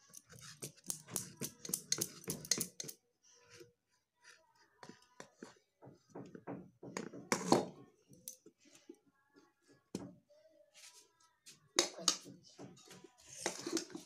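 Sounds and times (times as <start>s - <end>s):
spatula scraping metal pan: 13.3s - 14.0s.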